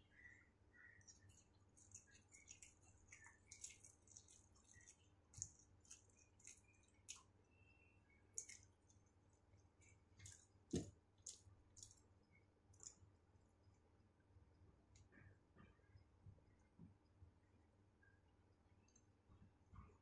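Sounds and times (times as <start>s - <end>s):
person chewing noodles: 1.1s - 7.3s, 8.3s - 12.0s.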